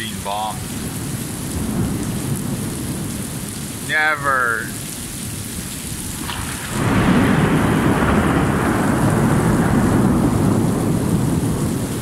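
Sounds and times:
heavy rain: 0.0 - 12.0
thunder clap and rumble: 0.6 - 12.0.

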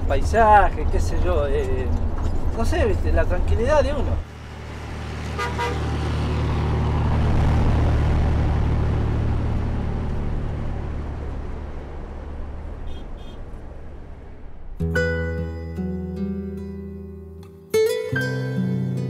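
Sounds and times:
tyre and road noise: 0.0 - 15.6
truck diesel engine passing: 4.0 - 15.9.

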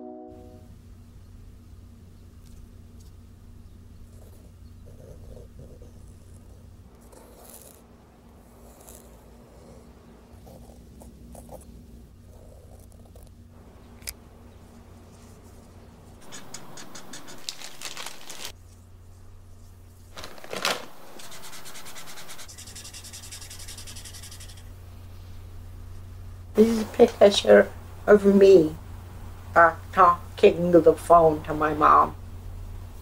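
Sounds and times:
faint low hum: 0.0 - 33.0
rubbing and scratching strokes: 14.6 - 24.8.

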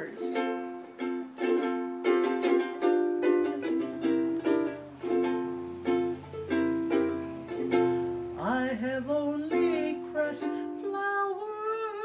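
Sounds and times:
ukulele strumming chords: 0.0 - 12.0.

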